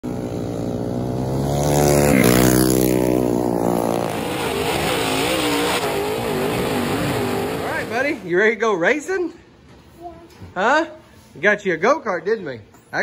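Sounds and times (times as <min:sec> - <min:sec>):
racing kart engines: 0:00.0 - 0:08.3.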